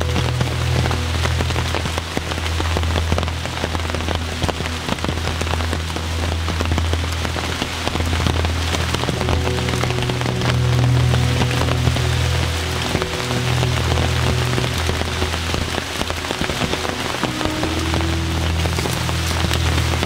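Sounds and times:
low rumble: 0:00.0 - 0:20.0
rain drops hitting: 0:00.0 - 0:20.0
rain hiss: 0:00.0 - 0:20.0.

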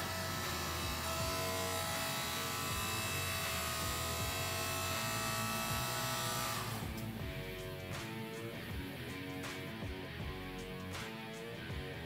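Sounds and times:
electric pump motor humming: 0:00.0 - 0:07.6.

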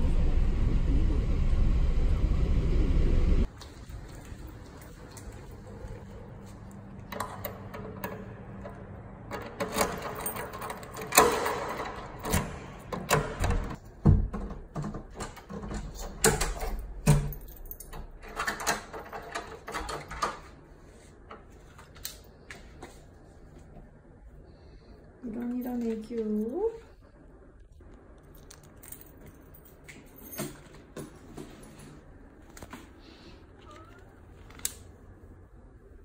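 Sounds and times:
door clicks and knocks: 0:09.4 - 0:17.3.

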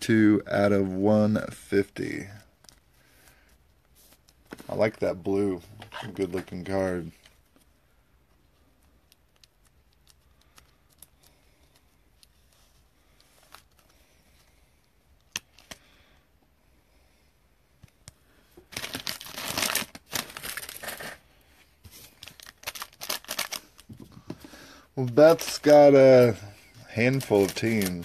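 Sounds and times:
foil wrapper crinkling: 0:18.7 - 0:21.2, 0:22.0 - 0:23.9, 0:25.0 - 0:28.0.

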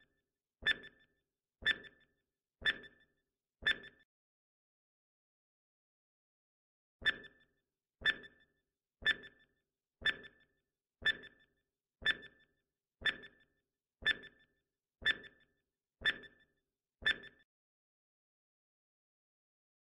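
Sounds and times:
clock-like timer ticks: 0:00.6 - 0:04.0, 0:07.0 - 0:17.4.

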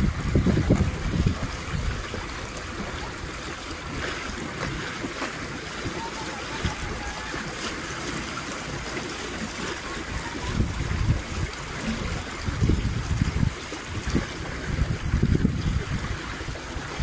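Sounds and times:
low rumbles: 0:00.0 - 0:05.1
water splashing and trickling: 0:00.0 - 0:17.0.

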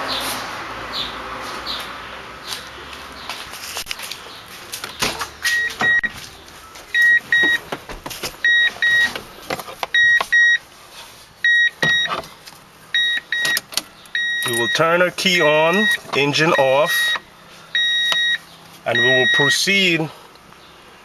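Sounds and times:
electronic warning chime beeping: 0:05.5 - 0:06.2, 0:07.0 - 0:07.6, 0:08.4 - 0:09.1, 0:10.0 - 0:10.6, 0:11.4 - 0:12.2, 0:13.0 - 0:13.6, 0:14.2 - 0:17.2, 0:17.8 - 0:19.7
knocks and rustling in car seat: 0:07.3 - 0:10.4.

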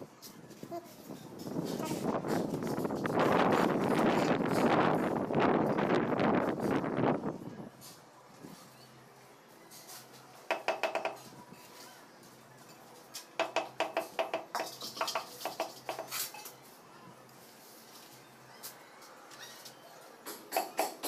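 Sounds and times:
ringing taps on ceramic tiles: 0:10.5 - 0:11.2, 0:13.4 - 0:16.1.

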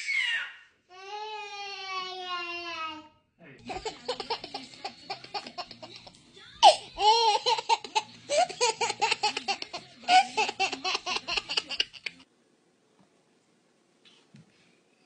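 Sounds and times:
baby laughing: 0:03.6 - 0:12.2.

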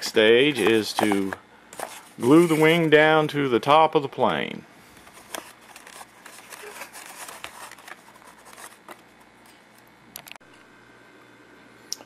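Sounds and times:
scratchy rustling of foam: 0:01.8 - 0:03.0.

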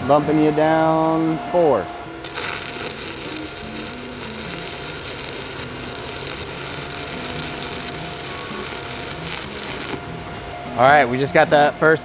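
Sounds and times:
welding arc hissing crackle: 0:02.2 - 0:10.0.

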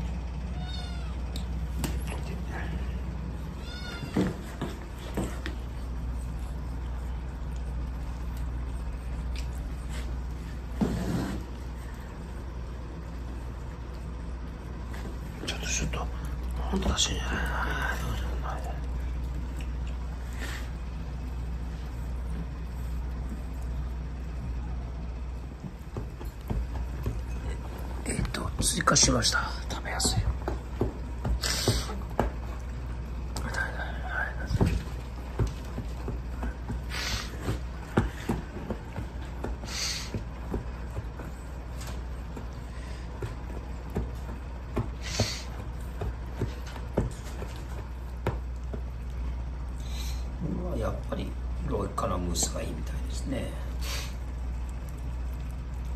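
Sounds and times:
steady low hum: 0:00.0 - 0:55.9
kittens eating from metal bowl: 0:26.4 - 0:29.4.

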